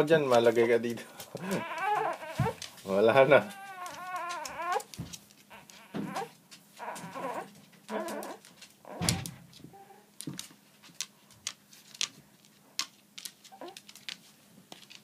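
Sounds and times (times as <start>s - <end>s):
infant whimpering and crying: 1.4s - 2.7s, 3.3s - 4.9s, 5.5s - 10.1s.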